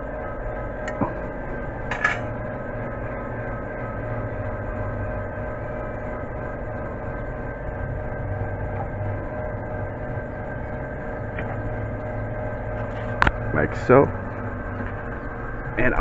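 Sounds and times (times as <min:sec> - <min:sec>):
steady hum: 0:00.0 - 0:16.0
metallic clank: 0:01.9 - 0:02.3.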